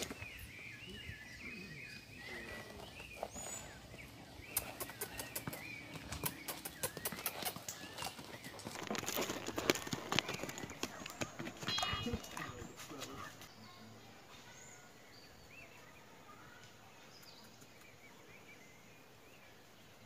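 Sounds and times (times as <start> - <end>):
hooves stepping on stony ground: 0.0 - 0.6, 2.2 - 13.6
birds chirping faintly: 0.0 - 20.0.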